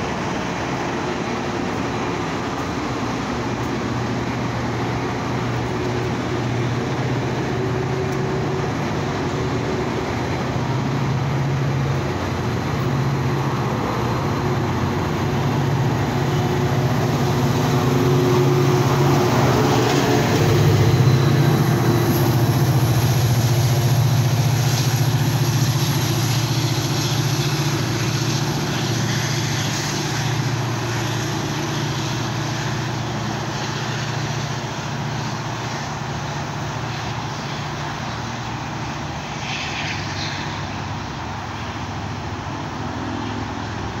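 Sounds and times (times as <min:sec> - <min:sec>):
diesel locomotive engine drone: 0:00.0 - 0:44.0
train wheels rolling: 0:00.0 - 0:44.0.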